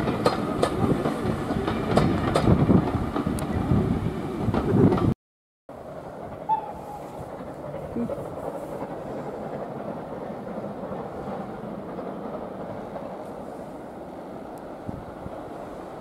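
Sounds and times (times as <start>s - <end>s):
steam train running: 0.0s - 5.1s, 5.7s - 16.0s.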